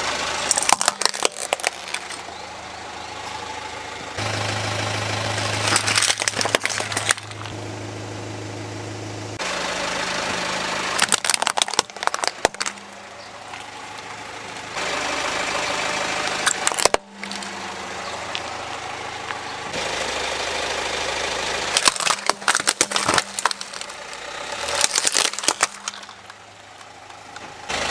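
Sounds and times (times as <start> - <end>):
car engine idling: 0.0 - 27.9
plastic cracking and snapping: 0.5 - 2.3, 5.6 - 7.5, 11.0 - 12.8, 16.4 - 17.5, 21.7 - 27.5.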